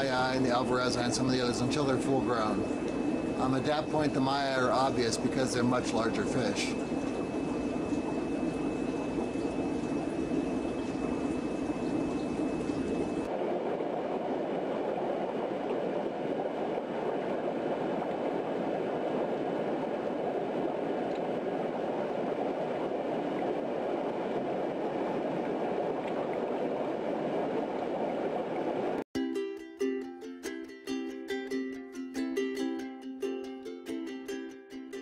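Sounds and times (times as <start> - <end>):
aquarium water bubbling: 0.0 - 29.0.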